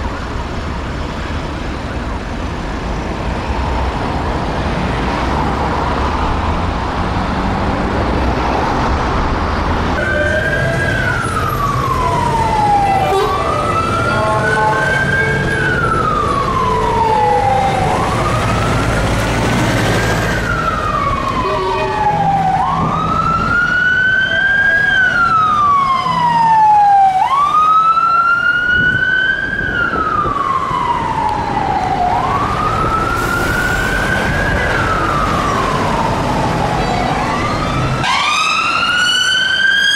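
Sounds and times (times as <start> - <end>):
traffic rumble: 0.0 - 39.9
police siren wailing: 9.8 - 39.9.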